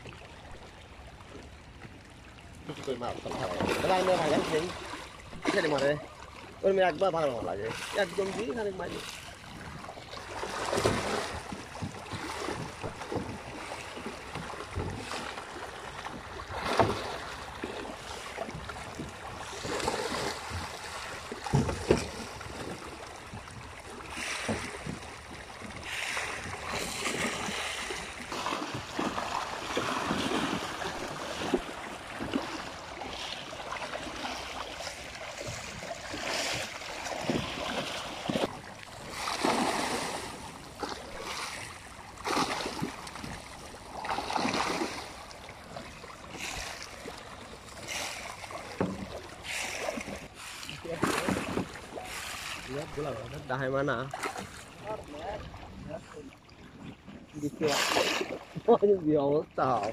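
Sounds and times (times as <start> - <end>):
fish splashing in pond water: 9.0 - 52.9, 54.1 - 55.7, 57.6 - 58.8.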